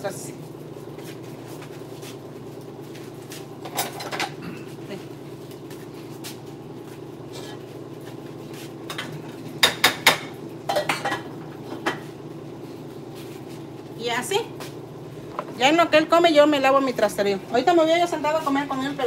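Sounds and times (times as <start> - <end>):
steady low hum: 0.0 - 19.0
metal pots and lids clanking: 3.6 - 4.4, 10.7 - 12.0.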